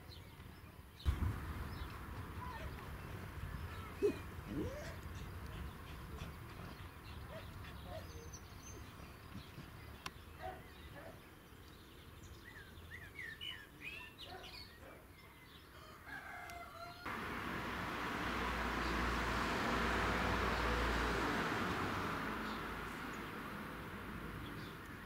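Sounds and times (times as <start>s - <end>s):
small birds chirping: 0.0s - 15.8s, 22.0s - 25.0s
wind rumble: 1.1s - 5.8s
faint rooster crowing: 15.7s - 17.2s.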